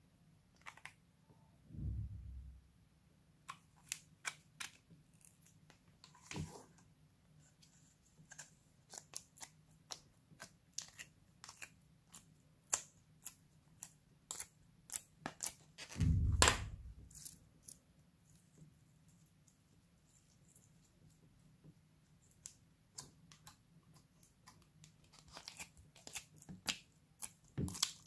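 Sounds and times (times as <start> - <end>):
slime clicking and crackling: 24.4 - 28.0.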